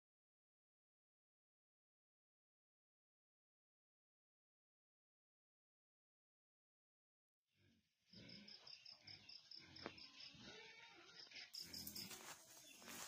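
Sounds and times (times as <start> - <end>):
cricket chirping: 8.1 - 13.0.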